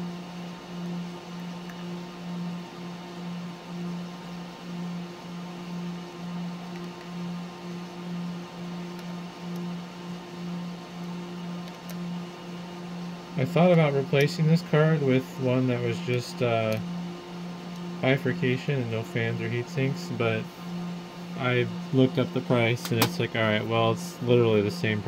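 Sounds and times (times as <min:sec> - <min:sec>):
pulsing machine hum: 0:00.0 - 0:25.0.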